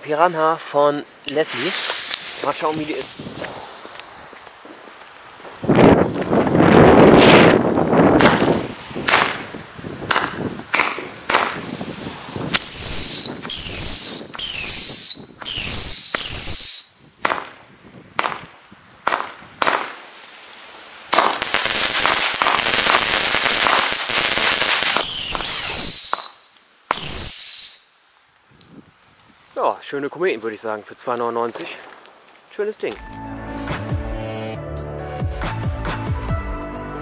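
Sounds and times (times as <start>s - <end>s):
firework hiss: 0.0s - 28.1s
firework shots: 1.1s - 28.1s
falling whistles: 12.6s - 17.2s, 25.0s - 28.4s.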